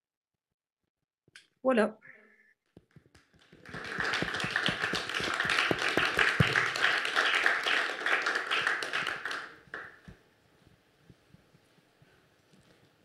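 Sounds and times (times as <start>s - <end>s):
audience applauding: 2.9s - 10.2s.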